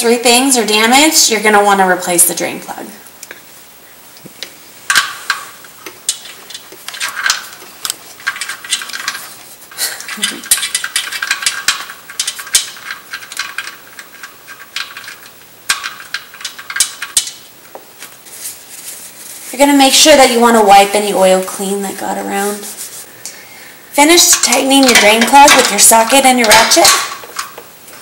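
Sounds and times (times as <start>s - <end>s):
drain plug metallic clicks: 24.2s - 27.7s.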